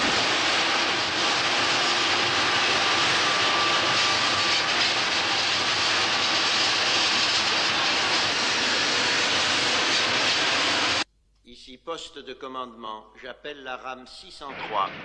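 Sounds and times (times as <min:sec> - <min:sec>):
train rushing at speed: 0:00.0 - 0:11.1.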